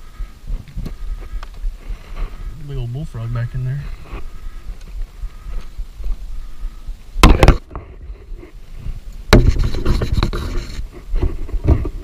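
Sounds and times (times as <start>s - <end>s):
rustling: 0.0s - 6.8s.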